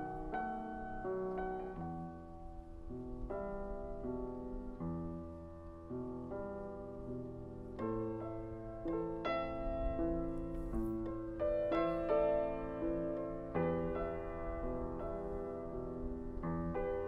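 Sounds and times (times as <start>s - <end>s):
slow piano chords: 0.0s - 17.0s.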